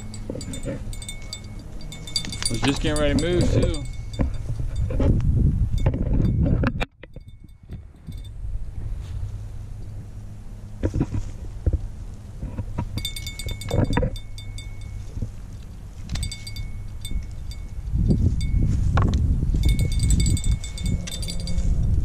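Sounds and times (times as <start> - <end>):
rapid metallic clicking: 0.0 - 4.6
low rumble: 0.0 - 22.0.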